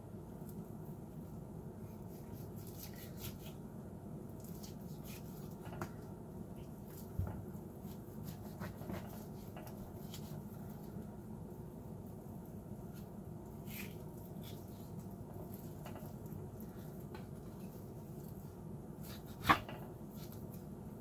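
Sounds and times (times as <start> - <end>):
knife slicing raw meat: 7.9 - 9.4.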